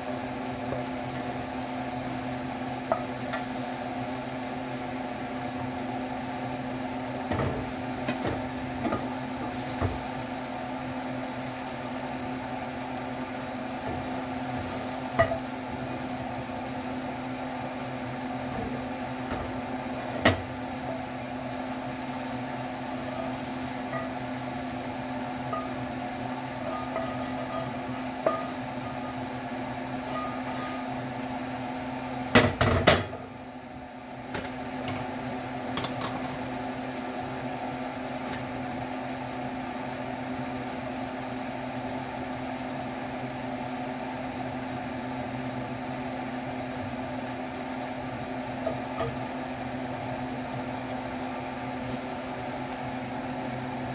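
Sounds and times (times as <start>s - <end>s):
mechanical hum: 0.0s - 53.9s
metal clanks of skillet on grate: 2.8s - 4.1s, 7.2s - 10.3s, 13.7s - 16.2s, 18.3s - 21.1s, 22.9s - 29.4s, 30.0s - 31.0s, 32.3s - 33.3s, 34.3s - 36.5s, 48.6s - 49.4s
spatula scraping skillet: 18.0s - 31.2s, 48.6s - 49.4s.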